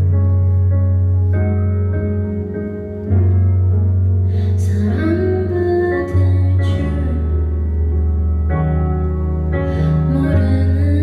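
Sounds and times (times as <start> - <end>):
keyboard chords: 0.0 - 11.0
woman singing: 4.4 - 7.8, 9.9 - 11.0.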